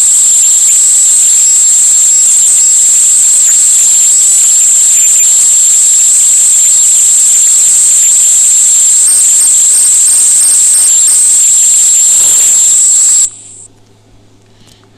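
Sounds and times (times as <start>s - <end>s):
high-pitched whine: 0.0s - 13.7s
hiss: 12.1s - 13.7s.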